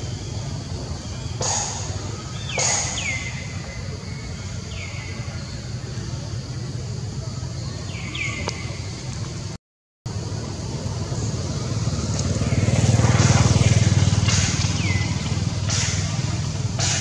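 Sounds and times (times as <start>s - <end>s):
bird chirp: 0.0s - 6.4s, 7.2s - 9.4s, 13.4s - 16.4s
passing vehicle engine hum: 5.6s - 17.0s.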